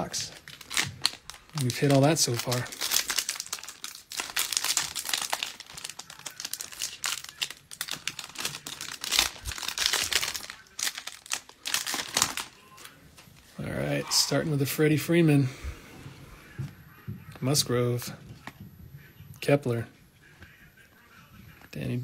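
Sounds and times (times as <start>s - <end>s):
foil wrapper crinkling: 0.0s - 13.5s.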